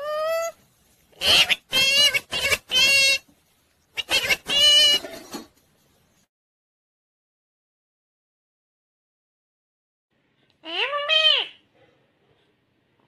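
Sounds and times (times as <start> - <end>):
parakeet high-pitched calls: 0.0 - 0.6, 1.2 - 3.3, 3.9 - 5.1, 10.6 - 11.6.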